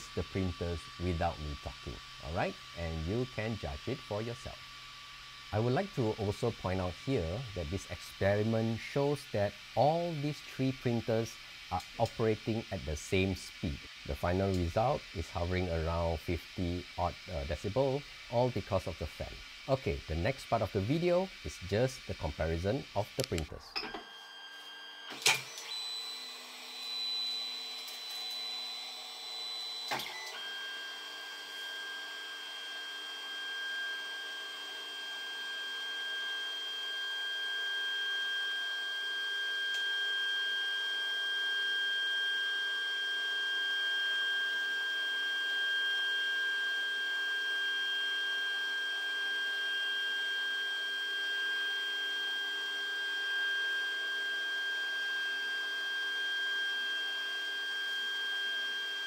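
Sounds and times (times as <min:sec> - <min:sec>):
stepper motor whine: 0:00.0 - 0:59.0.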